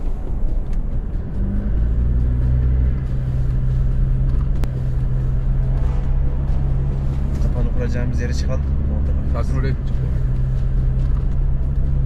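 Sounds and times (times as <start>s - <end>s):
car engine humming: 0.0s - 12.0s.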